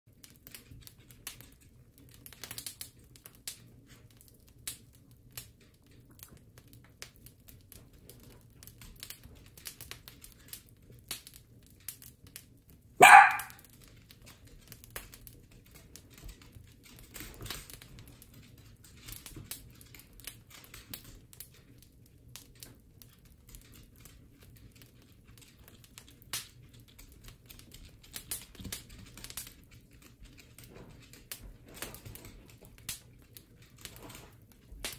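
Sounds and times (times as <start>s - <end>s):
dog barking: 13.0s - 13.6s.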